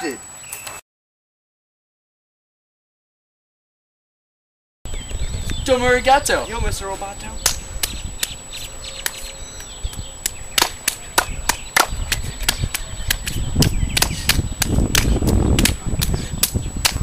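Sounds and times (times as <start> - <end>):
hand-clap routine: 9.0 - 17.0.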